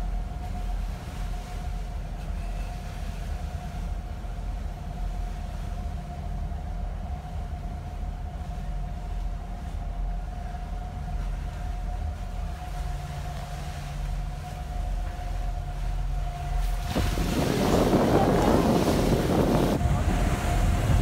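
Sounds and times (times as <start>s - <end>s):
rushing water: 0.0s - 21.0s
wind: 0.0s - 21.0s
engine whine: 10.5s - 21.0s.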